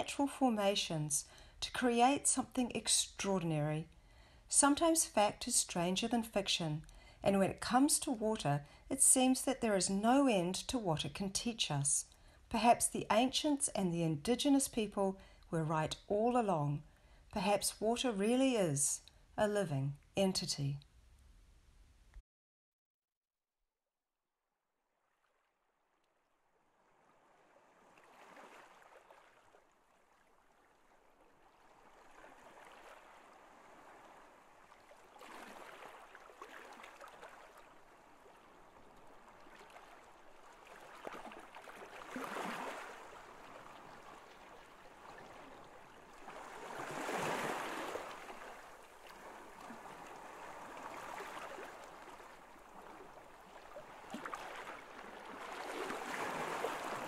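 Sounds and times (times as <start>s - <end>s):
rushing water: 26.8s - 57.0s.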